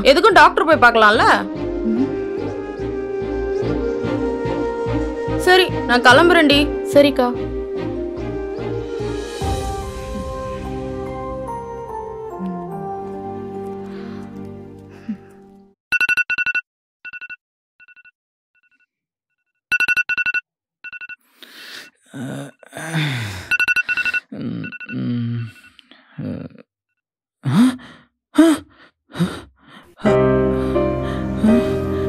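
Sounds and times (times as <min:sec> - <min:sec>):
man groaning and sighing: 0:22.0 - 0:23.6, 0:24.3 - 0:26.6, 0:27.4 - 0:28.6
phone alarm two-tone beeps: 0:23.5 - 0:25.0.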